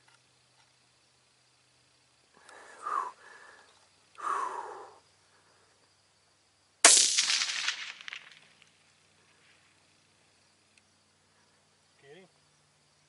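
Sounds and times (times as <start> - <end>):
rifle shot crack: 6.8 - 8.6.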